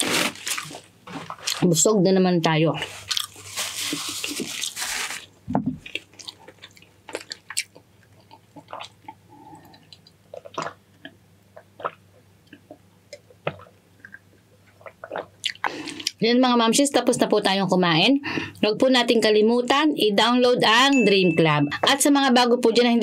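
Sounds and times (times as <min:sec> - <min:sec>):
wet chewing clicks and smacks: 0:05.9 - 0:16.2.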